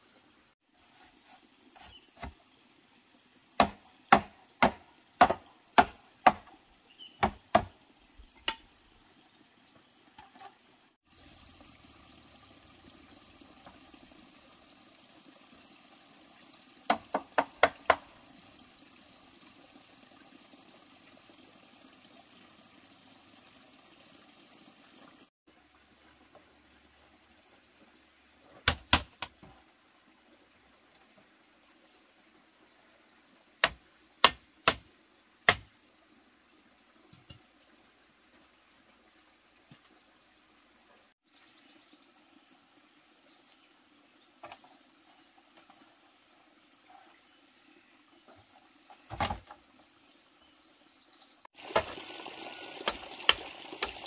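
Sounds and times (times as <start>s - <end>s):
tool knocking on bamboo: 3.6s - 6.5s, 7.2s - 7.8s, 16.9s - 18.1s.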